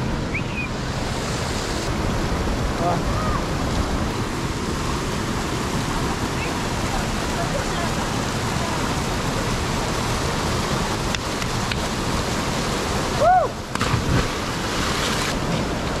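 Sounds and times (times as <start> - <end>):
river and waterfall rushing: 0.0 - 16.0
rising and falling whoop: 13.2 - 13.6.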